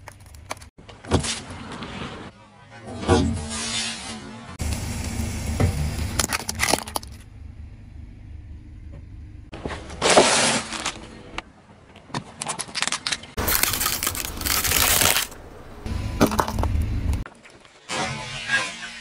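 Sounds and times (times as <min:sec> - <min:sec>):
tyre crushing plastic: 0:12.4 - 0:15.4.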